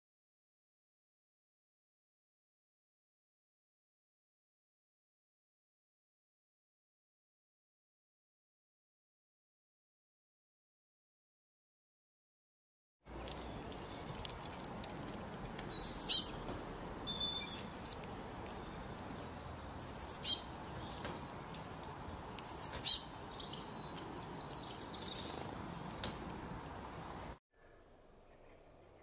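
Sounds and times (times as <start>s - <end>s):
faint outdoor hiss: 13.1s - 29.0s
songbird chirping: 13.1s - 29.0s.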